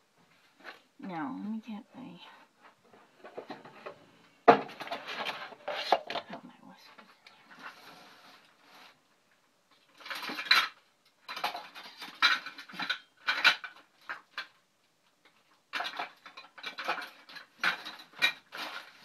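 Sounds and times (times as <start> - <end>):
metal utensils clattering: 10.0 - 13.8, 15.7 - 19.0.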